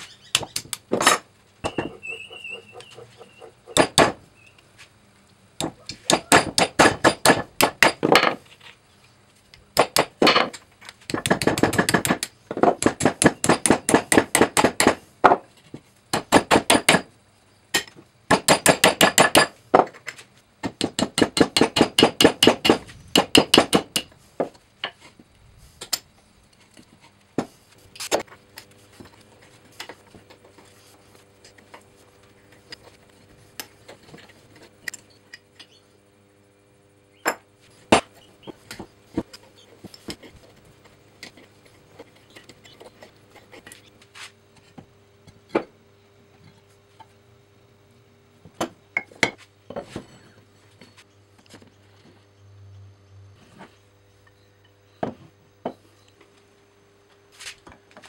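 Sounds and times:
hammer tapping punch on steel: 3.7s - 4.2s, 5.6s - 8.0s, 11.1s - 15.0s.

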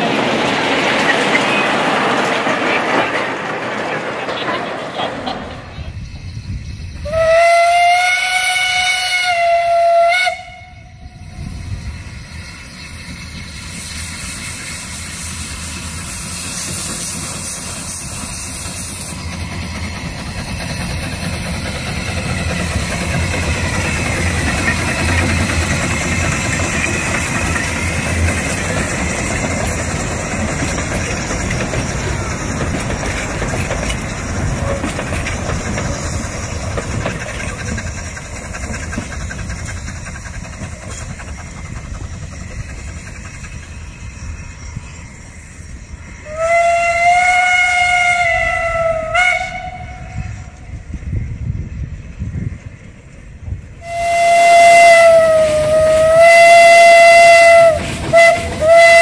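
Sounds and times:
steam hissing: 0.0s - 59.0s
steam locomotive passing: 0.0s - 59.0s.

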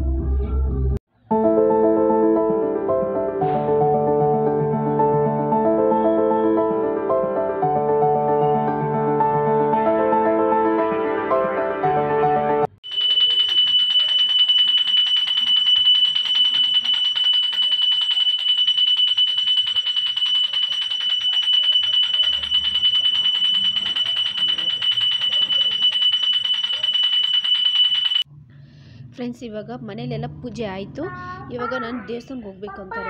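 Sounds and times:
hand bell ringing rapidly: 12.8s - 28.2s.

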